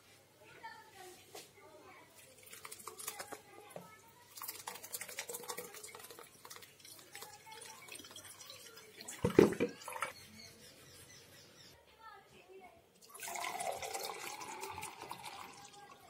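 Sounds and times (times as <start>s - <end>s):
pulp pouring into strainer: 2.2s - 10.1s, 13.0s - 16.0s.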